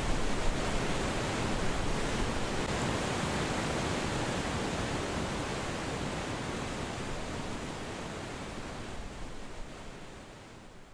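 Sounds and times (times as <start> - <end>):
river whitewater roaring: 0.0 - 10.2.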